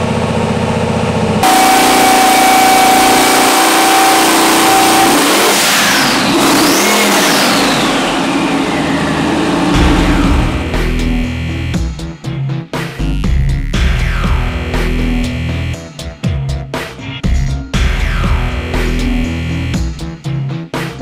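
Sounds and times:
engine running loud: 0.0s - 11.9s
high whine: 1.1s - 11.9s
deep low rumble: 9.1s - 11.8s.

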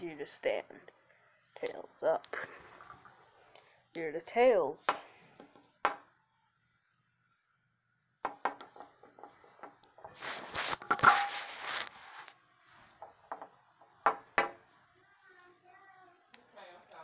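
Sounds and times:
rubbing scrape on microphone: 9.3s - 12.9s.

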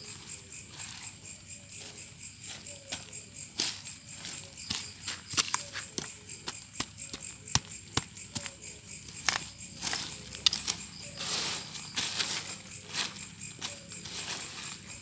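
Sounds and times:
high insect chirp: 0.0s - 15.0s
sharp knocks working soil: 1.8s - 15.0s
rustling scrapes: 9.8s - 15.0s.

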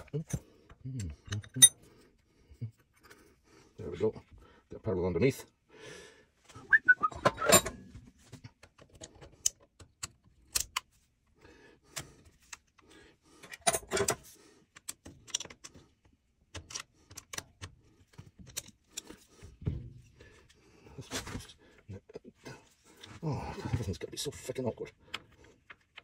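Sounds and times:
metal parts clinking: 1.2s - 1.8s.

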